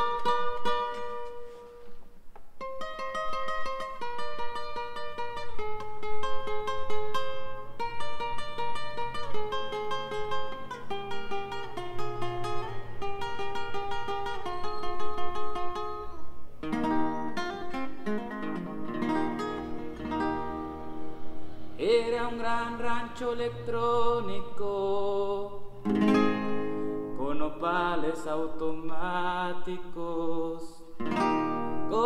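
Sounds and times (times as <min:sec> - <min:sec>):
acoustic guitar picking: 0:00.0 - 0:32.0
man singing: 0:21.8 - 0:25.8, 0:27.1 - 0:31.0, 0:31.8 - 0:32.0.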